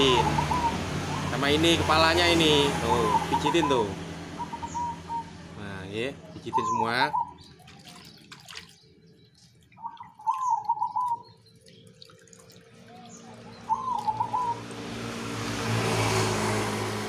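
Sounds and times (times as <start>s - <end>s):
dove cooing: 0.0s - 1.3s, 2.9s - 5.3s, 9.8s - 11.4s, 12.9s - 15.1s
motor vehicle passing: 0.0s - 7.9s, 10.4s - 17.0s.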